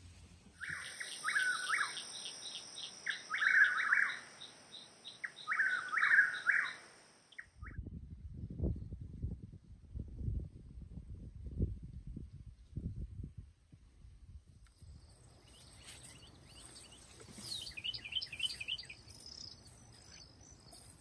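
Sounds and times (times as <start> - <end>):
small bird chirping: 0.6 - 7.8, 14.7 - 21.0.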